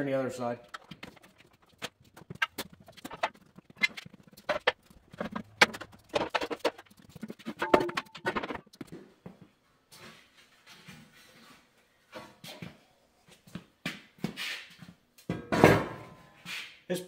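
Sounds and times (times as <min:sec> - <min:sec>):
metal plates clanking and scraping: 0:00.6 - 0:08.7.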